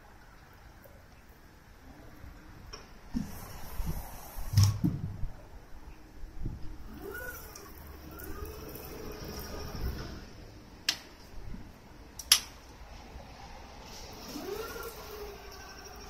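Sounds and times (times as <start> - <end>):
sharp clicks: 12.2 - 12.6.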